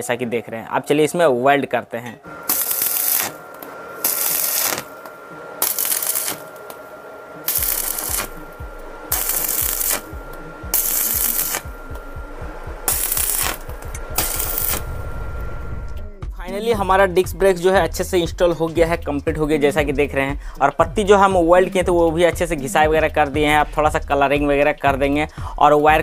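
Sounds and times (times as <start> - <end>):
faint steady whine: 2.0 - 16.3
welding arc crackling: 2.3 - 16.1.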